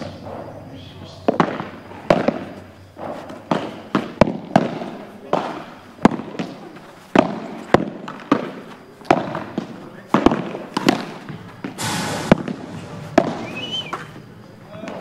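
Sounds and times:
rackets striking ball: 0.0 - 15.0
ball bouncing: 1.3 - 14.2
short hissing noise: 11.8 - 13.9.

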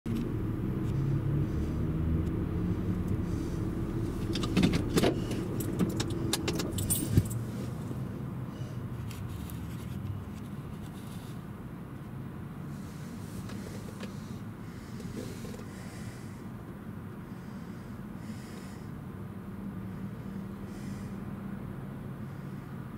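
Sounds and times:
car idling: 0.1 - 22.9
metallic jingling: 6.7 - 7.4.

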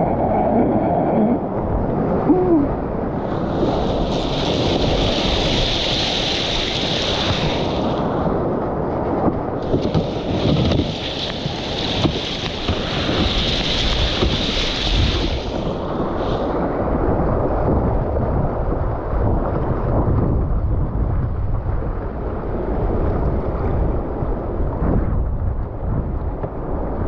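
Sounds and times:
whitewater rushing and splashing: 0.0 - 8.4, 9.1 - 17.3
wind buffeting microphone: 0.0 - 27.0.

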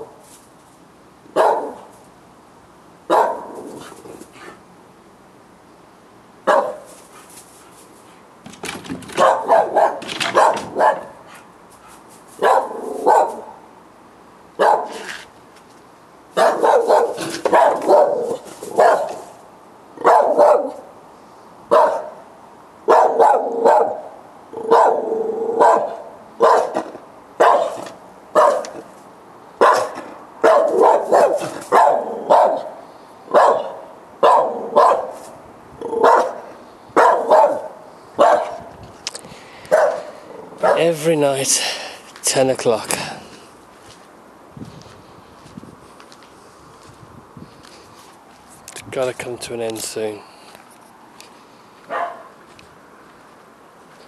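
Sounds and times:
dogs barking: 1.3 - 1.9, 3.1 - 4.0, 6.5 - 7.3, 9.1 - 13.6, 14.6 - 15.1, 16.4 - 19.4, 20.0 - 20.9, 21.7 - 22.2, 22.9 - 28.9, 29.6 - 35.2, 35.9 - 38.7, 39.7 - 40.9, 51.9 - 52.4.

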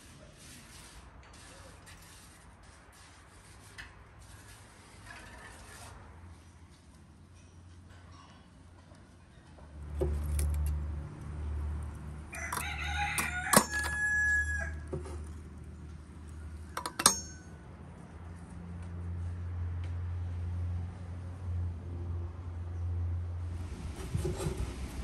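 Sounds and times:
rooster crowing: 12.3 - 14.9
metal tongs clanking on stove: 16.8 - 17.4.

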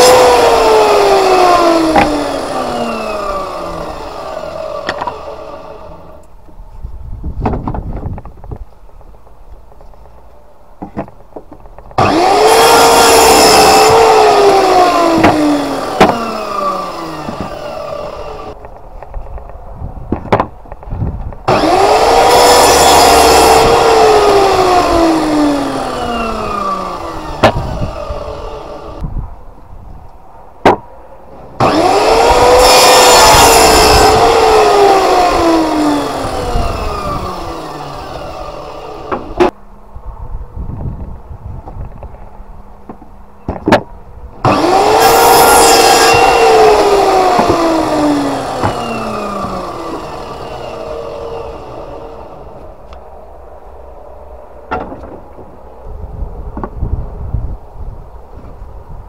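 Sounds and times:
mitre saw cutting wood: 0.0 - 6.3, 11.9 - 18.6, 21.5 - 29.0, 31.6 - 39.6, 44.4 - 53.0.

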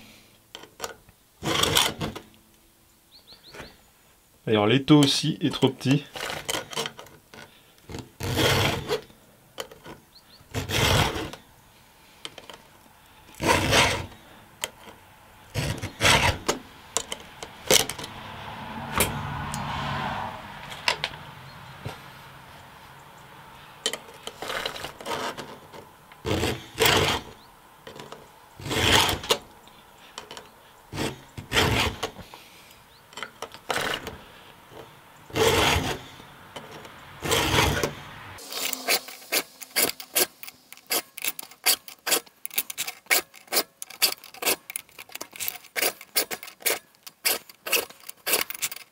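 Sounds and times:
file rasping on saw chain: 1.4 - 2.2, 7.9 - 9.1, 10.5 - 11.4, 13.3 - 14.2, 14.8 - 17.2, 24.1 - 29.5, 30.2 - 32.3, 33.2 - 48.9.

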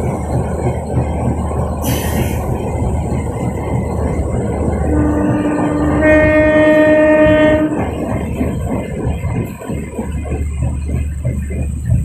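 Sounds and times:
carriages rattling on track: 0.0 - 12.0
train humming: 0.0 - 12.0.

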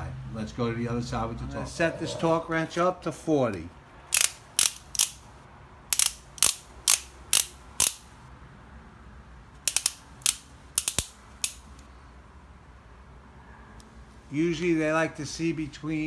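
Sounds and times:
torque wrench ratchet clicks: 4.1 - 5.2, 5.9 - 8.0, 9.6 - 11.6.

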